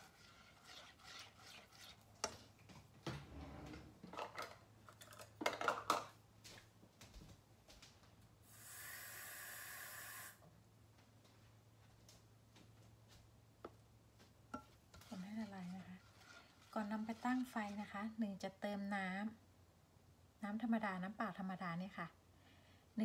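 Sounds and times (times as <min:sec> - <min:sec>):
spatula scraping a saucepan: 0:00.0 - 0:02.6, 0:14.6 - 0:18.2
steady hiss: 0:08.4 - 0:10.4.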